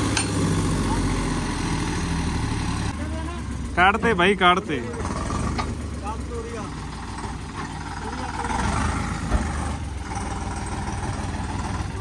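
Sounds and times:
tractor diesel engine running: 0:00.0 - 0:12.0.

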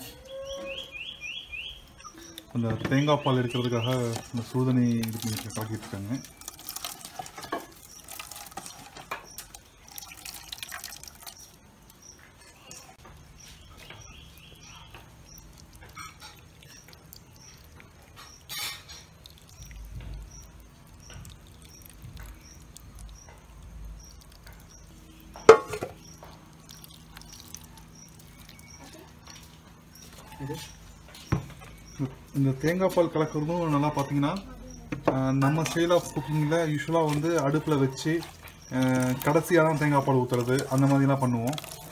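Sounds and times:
liquid dripping into a bowl: 0:01.5 - 0:41.9
hand squeezing grated coconut: 0:03.0 - 0:13.6, 0:35.2 - 0:41.9.

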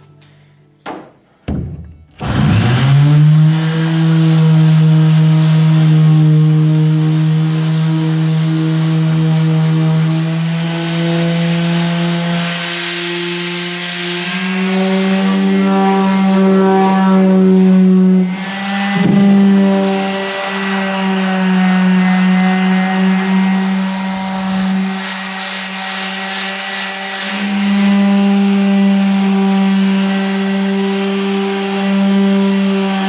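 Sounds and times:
knock: 0:00.8 - 0:02.0
orbital sander running: 0:02.2 - 0:33.0.

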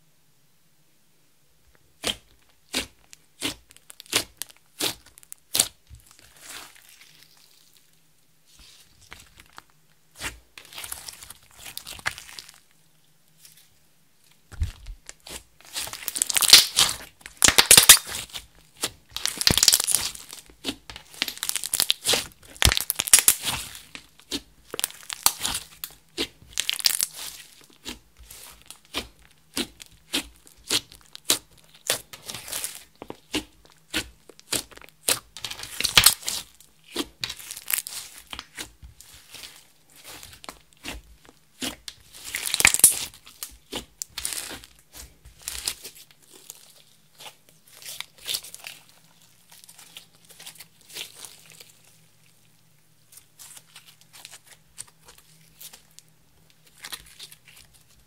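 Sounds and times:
slime crackling and popping: 0:02.0 - 0:07.9, 0:14.5 - 0:52.5.

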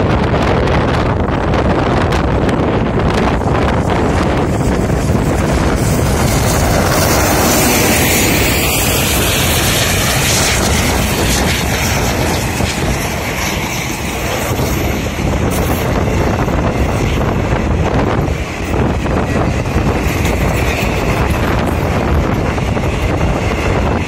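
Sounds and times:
diesel locomotive engine: 0:00.0 - 0:24.0
passenger coaches rolling past: 0:00.0 - 0:24.0
wind buffeting microphone: 0:00.0 - 0:24.0.

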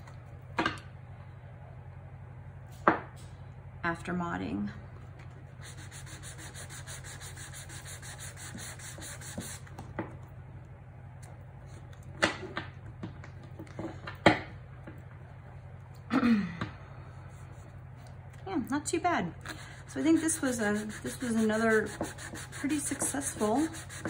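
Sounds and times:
sanding pad rubbing card edges: 0:05.6 - 0:09.7, 0:19.5 - 0:24.0.

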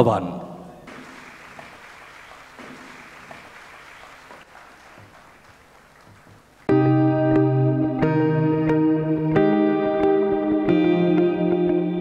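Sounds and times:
background music of held notes: 0:06.7 - 0:12.0.

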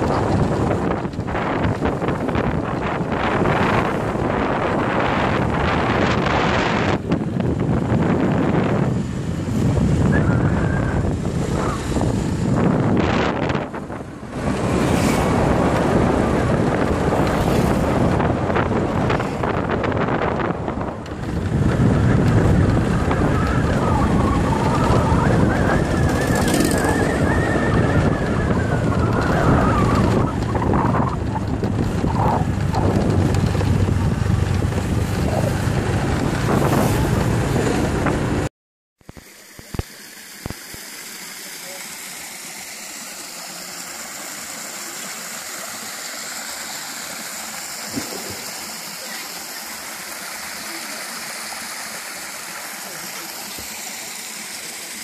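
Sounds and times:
wind buffeting microphone: 0:00.0 - 0:38.5, 0:47.9 - 0:48.7
moving vehicle running noise: 0:00.0 - 0:40.8, 0:41.6 - 0:55.0.

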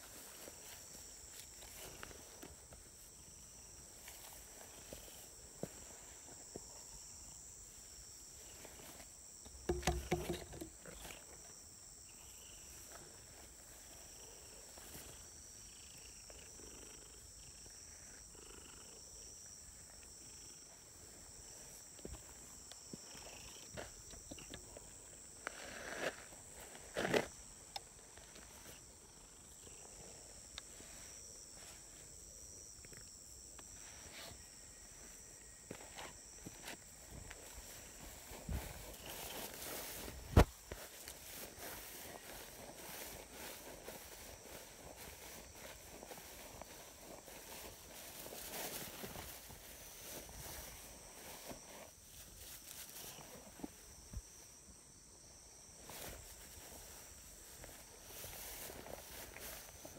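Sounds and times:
insects buzzing: 0:00.0 - 0:59.9
short knocks or rustles: 0:09.6 - 0:10.8.

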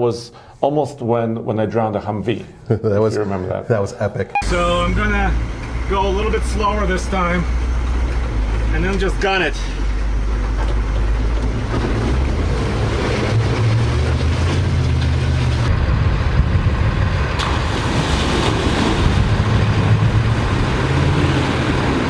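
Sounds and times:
truck engine under heavy throttle: 0:04.4 - 0:22.0
water splashing and churning: 0:10.9 - 0:15.7, 0:16.9 - 0:22.0.

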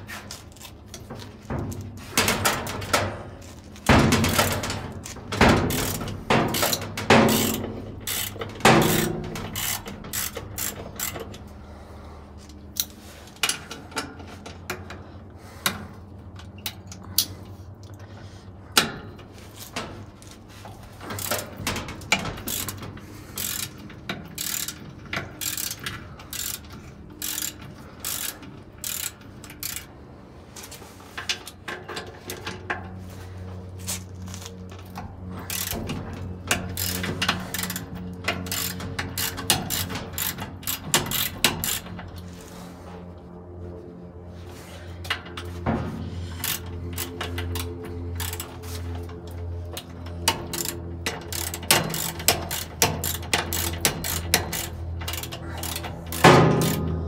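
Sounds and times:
ratchet wrench clicking: 0:03.8 - 0:11.5, 0:12.7 - 0:15.0, 0:20.6 - 0:29.9, 0:34.2 - 0:42.3, 0:46.3 - 0:57.0.

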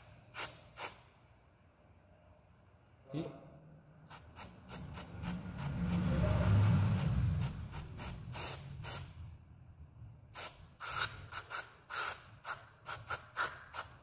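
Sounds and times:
aerosol spray hissing spurts: 0:04.1 - 0:09.1, 0:10.4 - 0:14.0.

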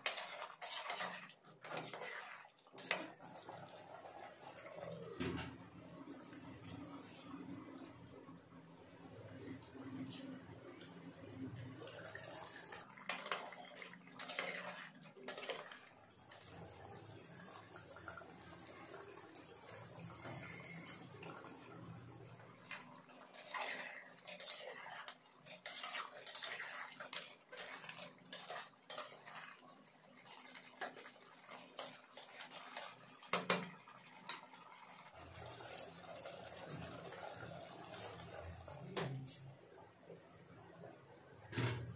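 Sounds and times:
metal spoon scraping cooking pot: 0:00.0 - 0:03.2, 0:13.0 - 0:15.8, 0:22.7 - 0:29.6
wet gravy sounds: 0:00.0 - 0:40.8.

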